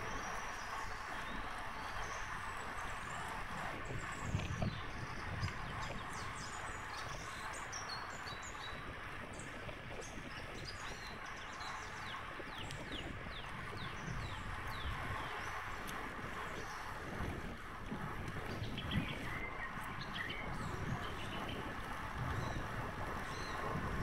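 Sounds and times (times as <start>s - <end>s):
wind and bike road noise: 0.0s - 24.0s
small birds chirping: 18.4s - 23.8s.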